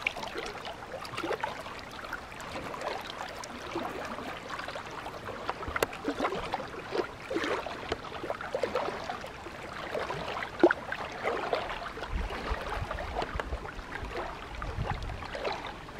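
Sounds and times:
small waves lapping against rocks: 0.0s - 15.9s.

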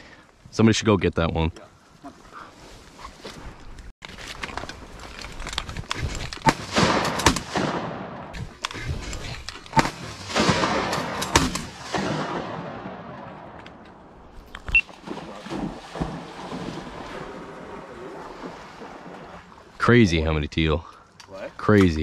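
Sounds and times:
shotgun blasts with rolling echo: 6.5s - 8.4s, 9.8s - 14.3s.

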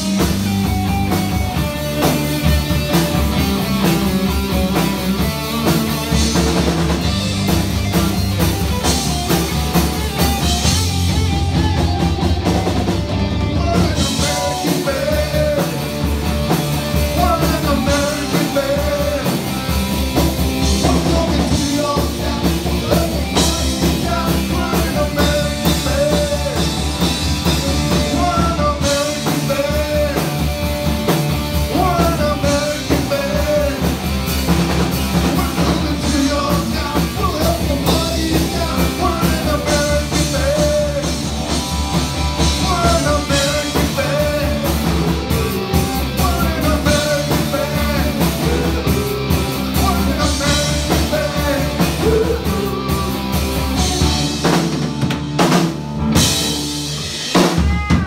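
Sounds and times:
bass guitar: 0.0s - 58.0s
drum kit: 0.0s - 58.0s
electric guitars: 0.0s - 58.0s
man singing: 13.4s - 30.8s, 31.4s - 41.6s, 42.3s - 54.9s.

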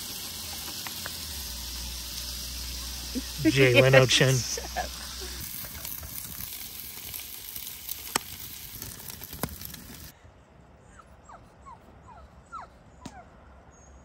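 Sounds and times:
steady hiss: 0.0s - 10.1s
dogs whimpering: 10.8s - 13.2s.

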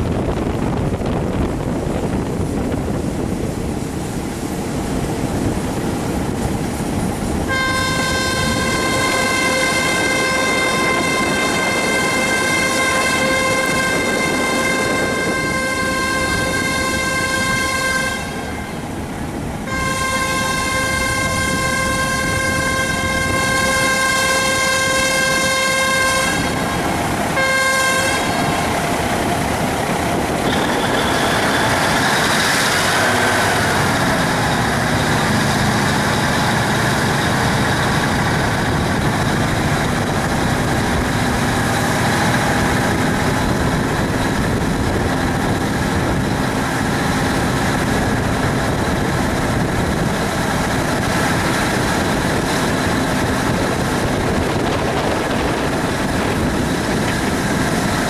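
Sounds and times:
moving train running noise: 0.0s - 58.0s
train horn blasts: 7.4s - 39.2s.

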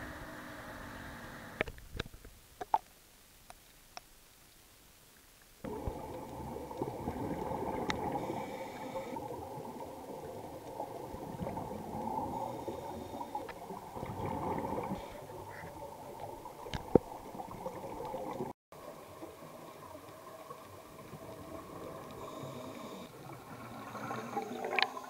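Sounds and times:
underwater bubbling of exhaled air: 5.6s - 25.0s.

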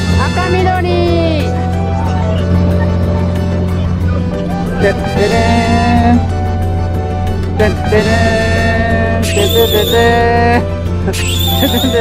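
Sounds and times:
background music with held notes: 0.0s - 12.0s.

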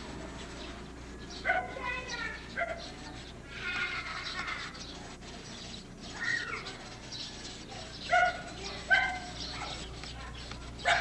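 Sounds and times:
faint outdoor background: 0.0s - 11.0s
dog yapping: 1.4s - 1.9s, 2.6s - 2.9s, 8.0s - 9.9s.

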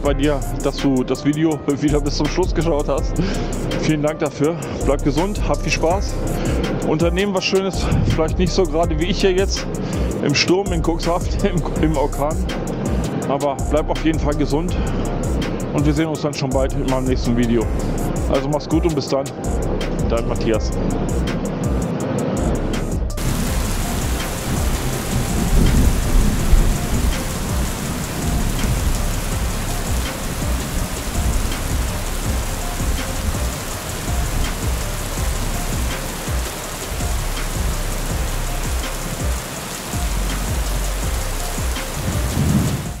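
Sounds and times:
low thunder rumbling: 23.2s - 39.4s, 40.0s - 43.0s
heavy rain: 23.2s - 43.0s.

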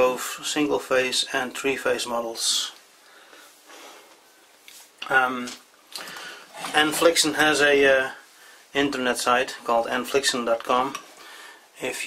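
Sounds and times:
soft breath: 3.0s - 4.5s, 11.1s - 11.8s.

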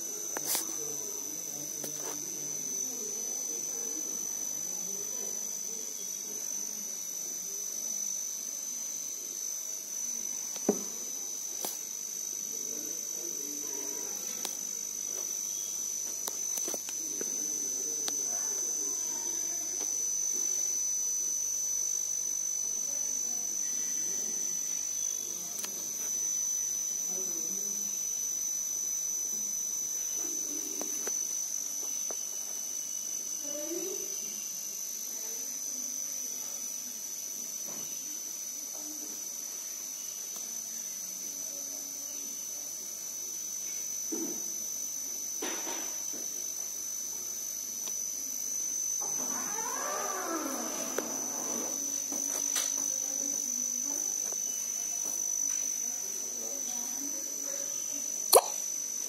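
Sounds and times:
steady high-pitched whine: 0.0s - 59.0s
sharp click: 58.3s - 58.6s.

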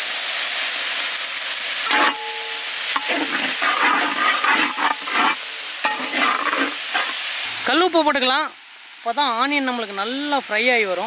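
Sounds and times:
onions sizzling in hot oil: 0.0s - 11.0s
short metallic rings: 1.9s - 7.2s
metal ladle scraping a pan: 1.9s - 7.4s.

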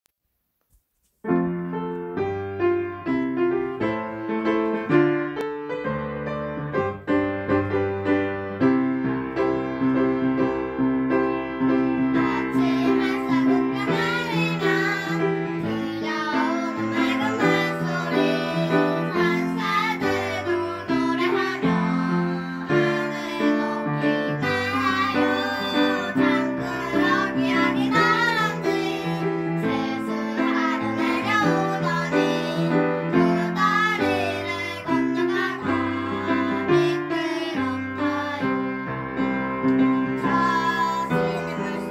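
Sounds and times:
upright piano playing: 1.2s - 41.9s
girls singing duet: 11.8s - 38.9s, 40.0s - 41.9s.

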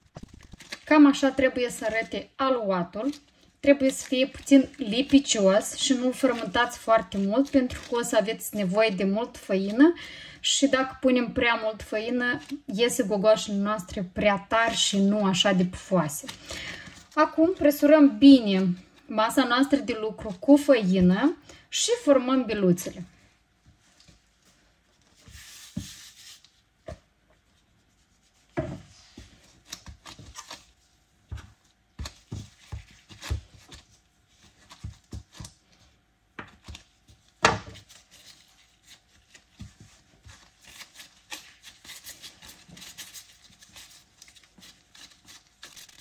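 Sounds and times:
hands rubbing dough: 3.0s - 9.9s, 23.5s - 46.0s.

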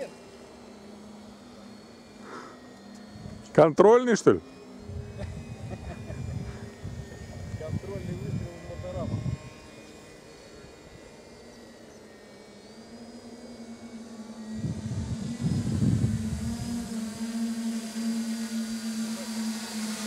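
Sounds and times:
drone motors humming and whining: 0.0s - 20.0s
low buffeting noise: 4.8s - 9.7s, 13.2s - 20.0s.

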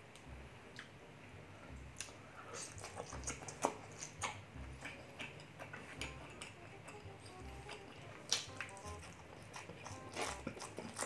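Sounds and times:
close chewing with lip smacks: 2.0s - 11.0s.

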